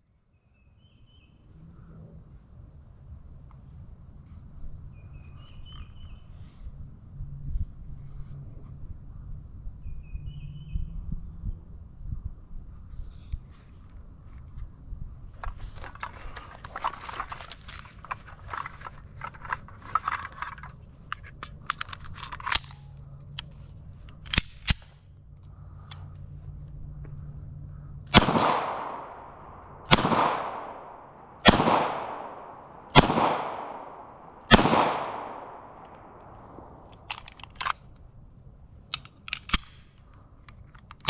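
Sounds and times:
pistol shots echoing: 28.1 - 36.9.

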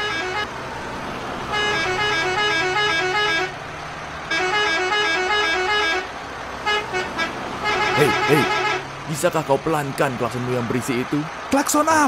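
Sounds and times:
bus musical horn jingle: 0.0 - 0.7, 1.4 - 3.6, 4.3 - 8.9.

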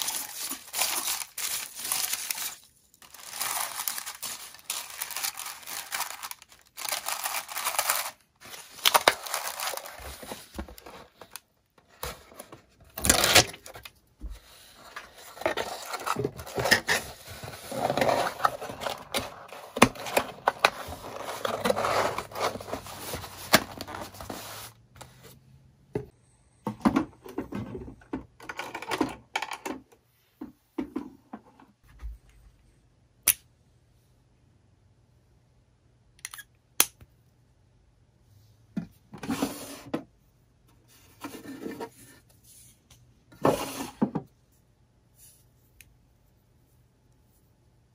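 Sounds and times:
packaging crinkling and tearing: 0.0 - 11.4, 12.9 - 13.9.

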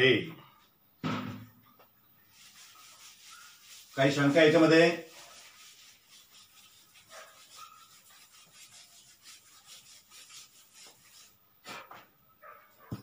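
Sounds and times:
duster rubbing chalk off blackboard: 2.3 - 12.1.

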